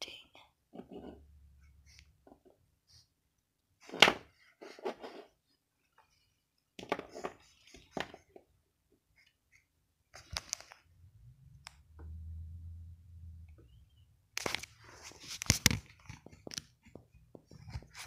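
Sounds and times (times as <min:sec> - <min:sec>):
low rumble: 0:11.0 - 0:14.1.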